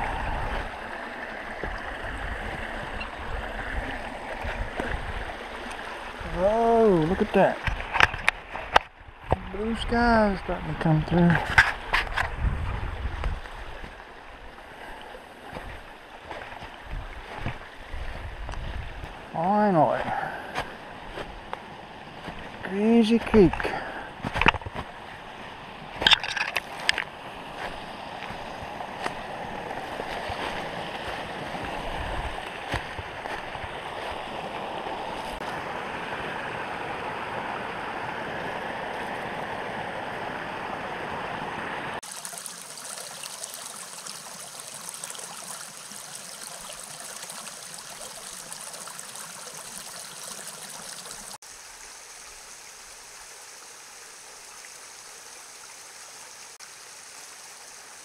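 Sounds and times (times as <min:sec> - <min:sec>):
creek gurgling over rocks: 0:00.0 - 0:58.0.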